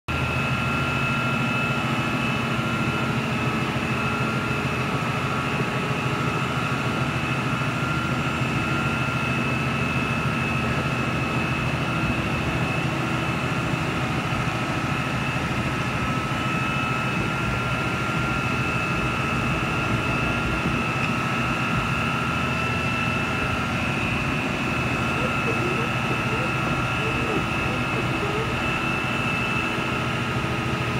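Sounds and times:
diesel engine running: 0.2s - 30.9s
high-pitched whine: 18.3s - 30.9s.

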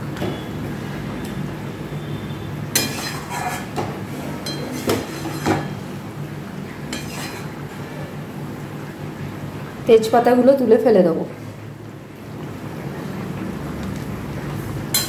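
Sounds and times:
spatula scraping metal pot: 2.8s - 5.8s, 6.9s - 7.6s.

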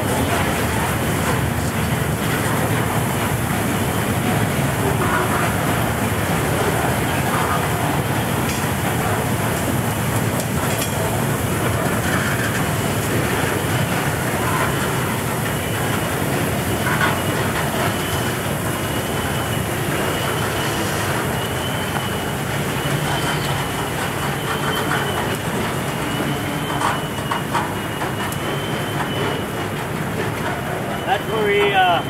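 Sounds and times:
train wheels rumbling on track: 0.0s - 32.0s
high wavering wheel squeal: 17.2s - 29.7s.

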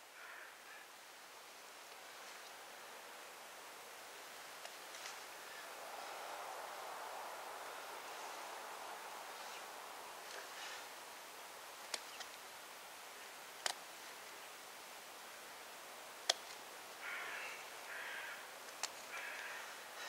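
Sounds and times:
quiet hiss: 0.0s - 20.0s
rush stems clicking and crackling: 4.6s - 5.3s, 11.8s - 12.4s, 13.5s - 14.3s, 16.2s - 16.6s, 18.6s - 19.6s.

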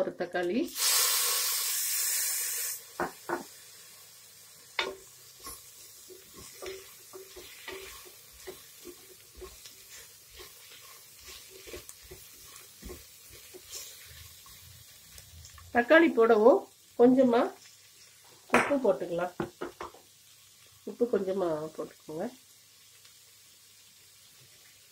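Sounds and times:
food sizzling in hot oil: 0.0s - 24.9s
spatula scraping through food: 5.4s - 15.2s.

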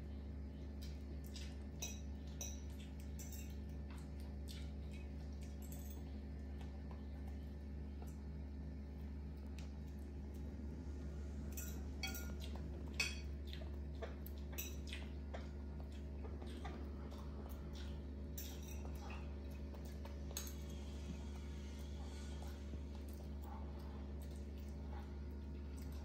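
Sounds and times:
steady low hum: 0.0s - 26.0s
metal tableware clinking and scraping: 11.5s - 12.4s.

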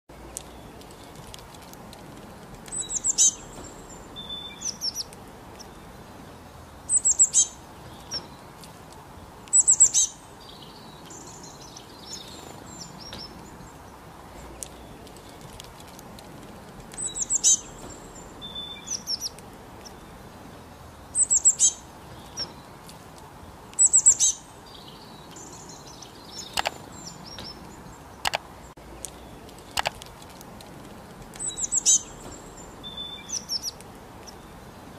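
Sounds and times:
faint steady hiss: 0.1s - 34.9s
songbirds chirping: 0.1s - 34.9s
sharp ticks: 26.4s - 26.8s, 28.2s - 32.5s.

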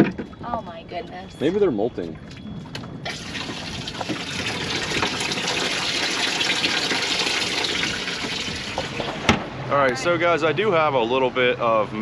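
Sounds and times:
gushing water: 3.1s - 9.2s.

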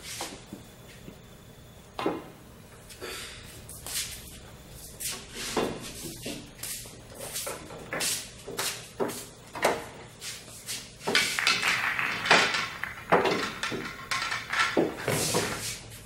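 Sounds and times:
pool balls clacking: 11.0s - 16.0s.

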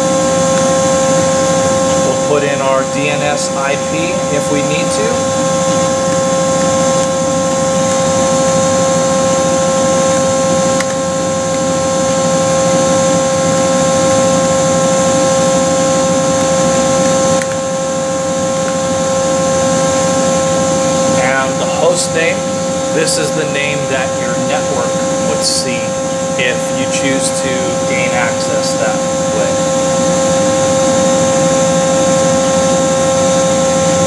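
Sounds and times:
machinery humming: 0.0s - 34.0s
mid-pitched whine: 0.0s - 34.0s.

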